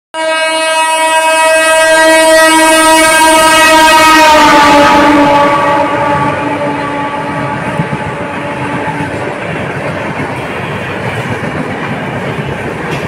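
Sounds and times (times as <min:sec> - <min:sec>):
train horn blast: 0:00.2 - 0:09.4
train rushing past: 0:00.7 - 0:13.0.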